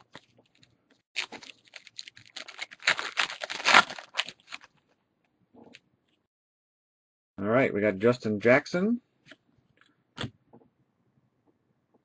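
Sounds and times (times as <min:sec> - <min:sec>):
foil wrapper tearing and crinkling: 0:00.0 - 0:04.8.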